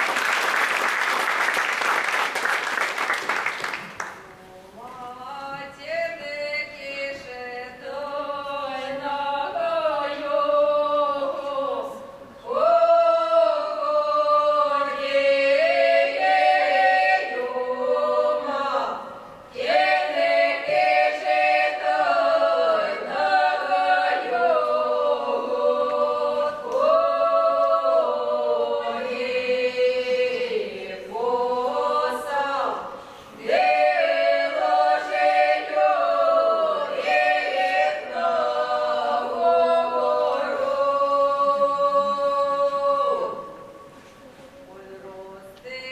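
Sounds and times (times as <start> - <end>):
unaccompanied folk choir singing: 4.6 - 45.9.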